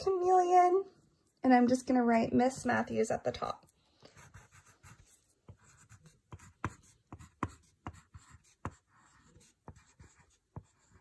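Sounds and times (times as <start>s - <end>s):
crayon scratching on paper: 4.1s - 11.0s.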